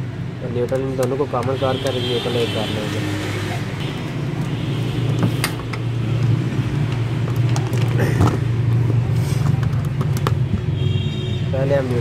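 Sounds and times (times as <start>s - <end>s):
tools tapping plastic switch board: 0.6s - 2.0s.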